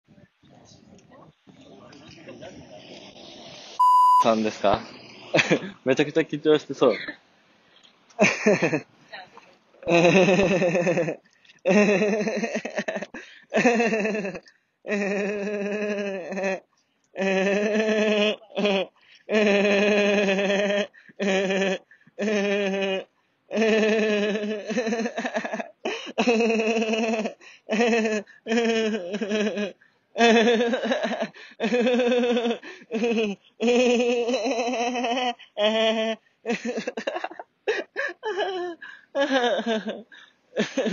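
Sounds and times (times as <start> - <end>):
man laughing: 5.4 - 5.8, 6.8 - 7.2, 8.2 - 8.8, 9.8 - 16.6, 17.2 - 22.7, 23.6 - 40.9.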